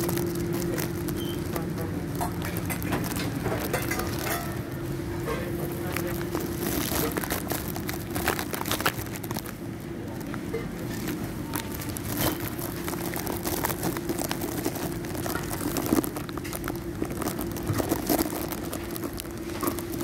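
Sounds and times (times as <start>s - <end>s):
light crinkling and clicking: 0.0s - 20.0s
steady hum: 0.0s - 20.0s.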